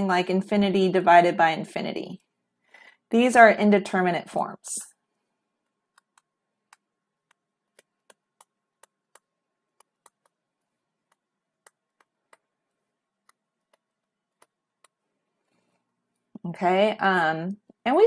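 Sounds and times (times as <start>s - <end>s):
stylus tapping tablet screen: 5.5s - 16.4s.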